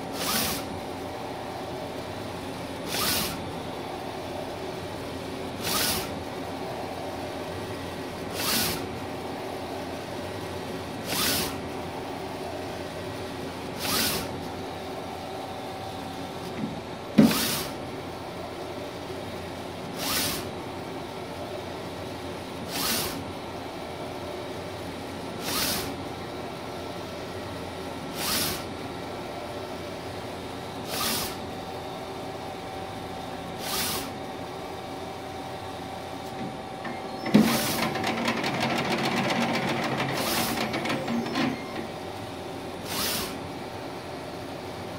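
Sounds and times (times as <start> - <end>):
printer machine hum: 0.0 - 44.9
print-head carriage rushing surge: 37.2 - 41.8.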